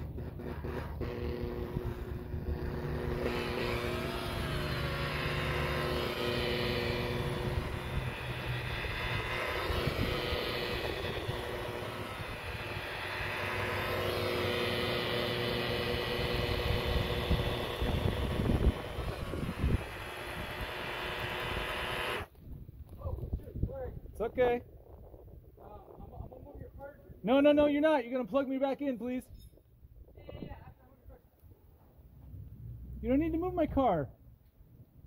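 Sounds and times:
buffer motor hum: 0:00.0 - 0:22.3.

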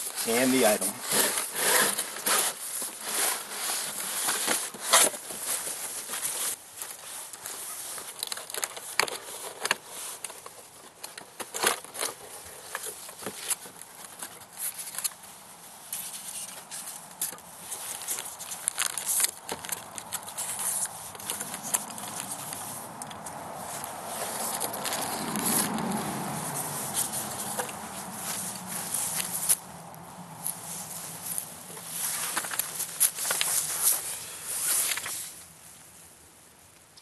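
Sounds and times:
plastic wrapping rustling: 0:00.0 - 0:35.5.

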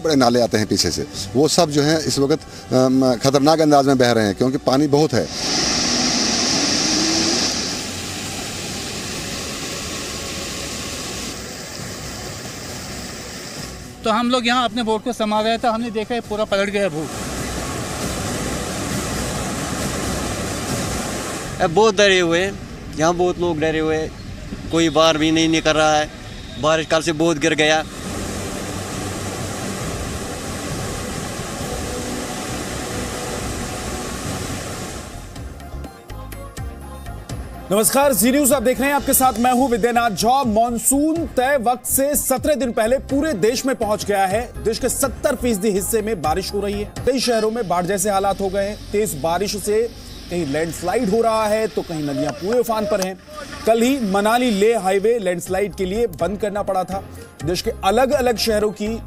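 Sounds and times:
flood torrent rushing: 0:05.2 - 0:13.4, 0:16.9 - 0:21.8, 0:27.1 - 0:35.4, 0:48.8 - 0:55.0.

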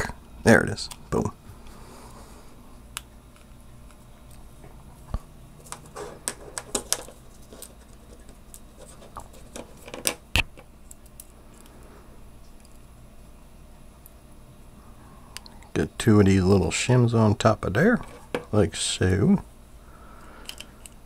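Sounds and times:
small plastic and metal parts clicking: 0:20.4 - 0:21.0.

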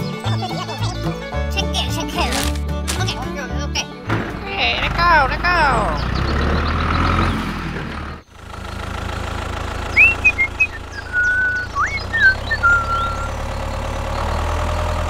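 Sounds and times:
tractor engine droning: 0:00.0 - 0:15.0
high whistling calls: 0:09.9 - 0:14.5.

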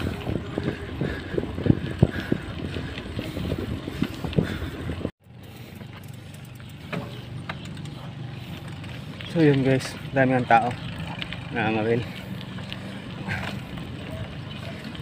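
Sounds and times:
wind noise: 0:00.0 - 0:05.1
bike rattling over rough road: 0:00.0 - 0:15.0.

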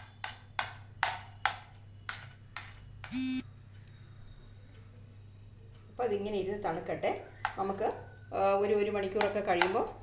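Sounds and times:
short electronic beep: 0:03.1 - 0:03.4.

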